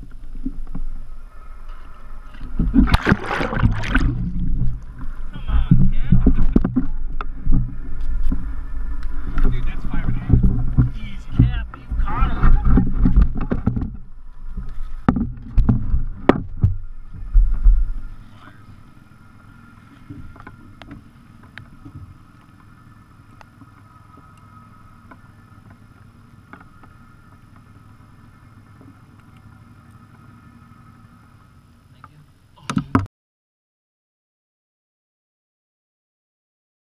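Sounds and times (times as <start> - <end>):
steady low hum: 0.0 - 33.1
knocks and thumps on boat deck: 2.5 - 8.5, 9.4 - 18.4, 32.0 - 33.1.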